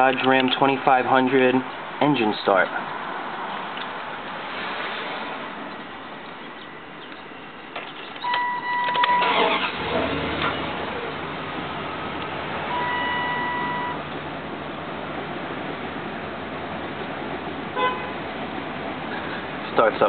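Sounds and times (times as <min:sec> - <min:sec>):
truck engine idling: 0:06.5 - 0:19.9
dashboard warning chime: 0:08.2 - 0:09.7, 0:12.7 - 0:14.0
ignition key click: 0:08.2 - 0:09.7
starter cranking: 0:08.9 - 0:10.6.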